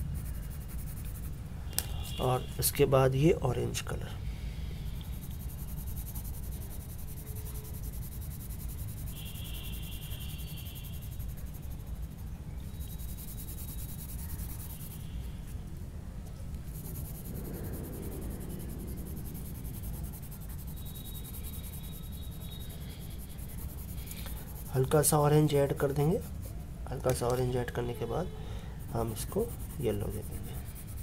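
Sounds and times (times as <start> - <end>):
pencil scratching on paper: 0.0 - 1.4, 4.9 - 15.2, 16.6 - 26.6, 28.8 - 31.0
low background rumble: 0.0 - 27.0, 28.3 - 31.0.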